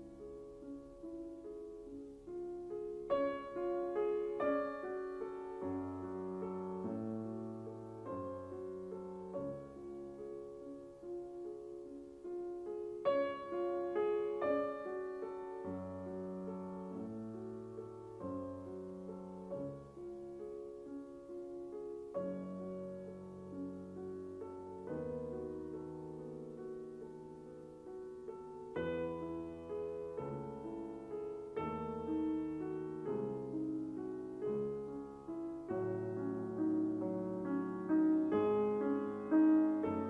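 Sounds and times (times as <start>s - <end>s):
slow gentle piano music: 0.0s - 40.0s.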